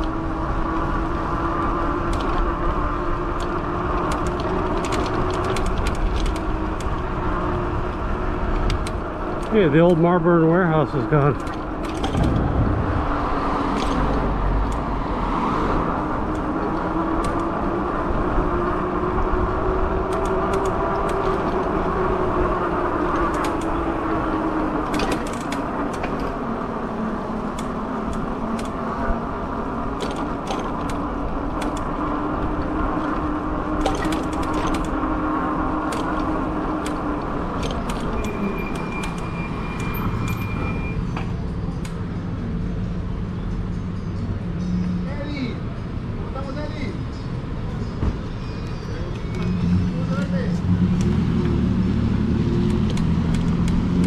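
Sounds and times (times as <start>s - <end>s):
road and wind rush: 0.0s - 54.0s
scattered clicks: 2.0s - 2.5s, 3.3s - 7.0s, 8.6s - 10.0s, 13.7s - 14.9s, 16.2s - 17.6s, 20.0s - 21.7s, 23.1s - 23.8s, 24.9s - 26.3s, 27.5s - 28.8s, 30.0s - 31.9s, 33.8s - 35.0s, 52.6s - 53.9s.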